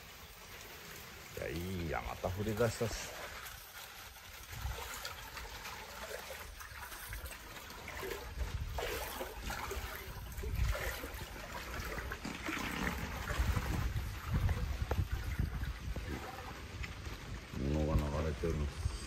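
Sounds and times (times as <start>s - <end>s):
rain falling on water: 0.0s - 18.8s
wading through water: 0.0s - 19.0s.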